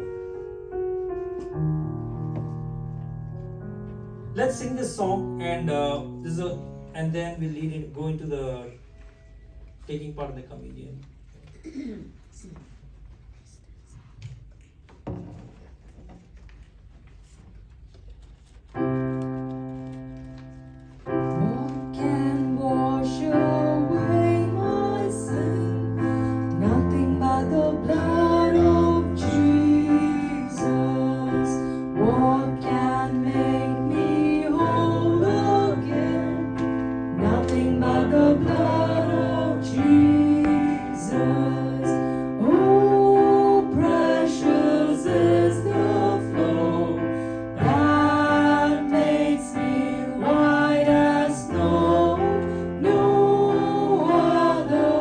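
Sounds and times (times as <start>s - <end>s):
keyboard chords: 18.9s - 55.0s
group singing worship song: 21.2s - 55.0s.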